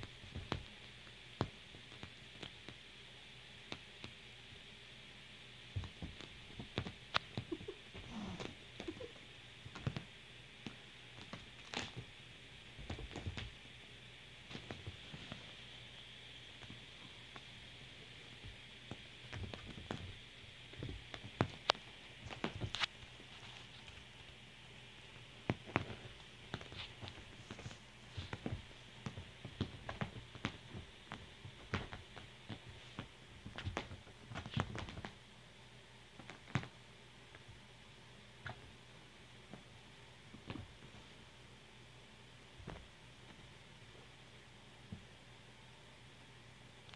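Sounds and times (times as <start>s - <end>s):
kitten paws scuffing fabric: 0.0s - 2.8s, 5.7s - 9.1s, 9.7s - 12.1s, 12.7s - 13.6s, 14.4s - 15.8s, 18.3s - 24.4s, 25.2s - 35.2s, 36.2s - 37.6s, 39.4s - 41.3s, 42.5s - 44.1s
faint steady hiss: 0.0s - 46.9s.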